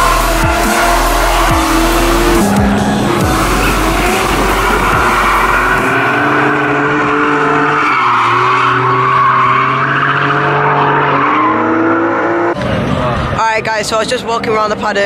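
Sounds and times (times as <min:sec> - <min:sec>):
music with steady bass line: 0:00.0 - 0:06.1
car engine revving: 0:00.0 - 0:14.9
tyres squealing: 0:00.1 - 0:06.8.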